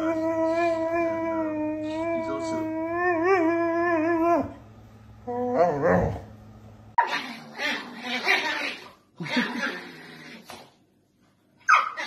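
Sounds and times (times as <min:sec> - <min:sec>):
dog whining howl: 0:00.0 - 0:04.6.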